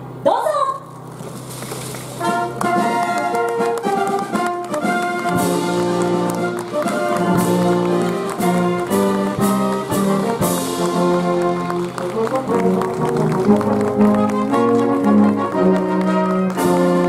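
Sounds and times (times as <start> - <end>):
brass band playing: 2.2 - 17.0.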